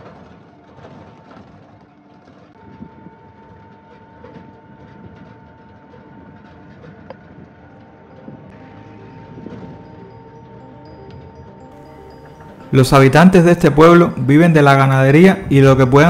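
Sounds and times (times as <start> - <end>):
vehicle driving on road: 0.0 - 16.0.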